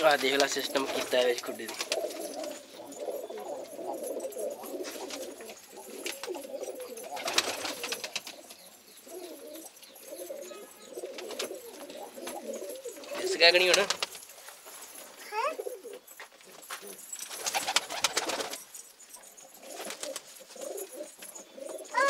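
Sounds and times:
wings flapping: 0.0 - 3.2, 4.0 - 8.6, 11.0 - 14.4, 16.6 - 18.8, 19.6 - 21.1
pigeons cooing: 0.0 - 14.2, 15.3 - 22.0.

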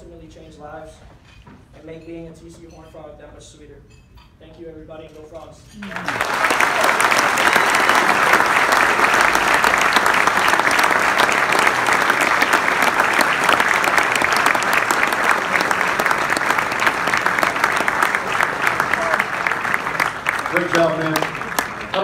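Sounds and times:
audience applauding: 5.8 - 22.0.

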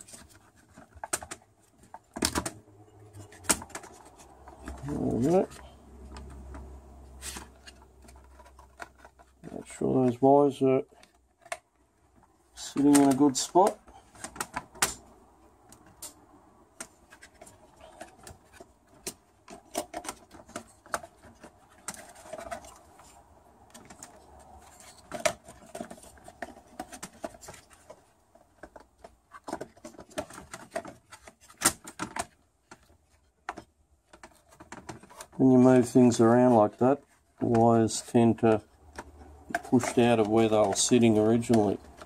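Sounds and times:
plastic and wiring clicks: 0.1 - 6.7, 12.6 - 35.4.

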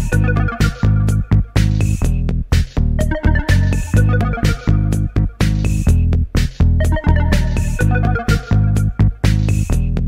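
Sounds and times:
synth melody: 0.0 - 1.2, 3.0 - 5.2, 6.8 - 8.9
pulsing bass line: 0.0 - 10.0.

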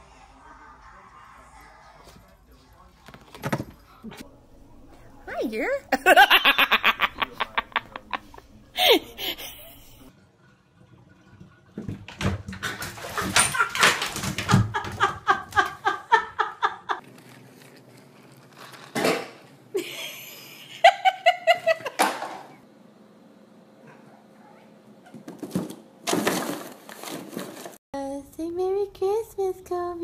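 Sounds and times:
people laughing: 5.9 - 10.1, 13.0 - 17.0, 19.8 - 22.0.

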